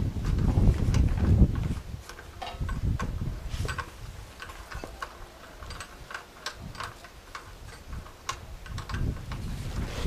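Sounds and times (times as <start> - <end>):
wrench clicking on bolts: 2.0 - 9.5.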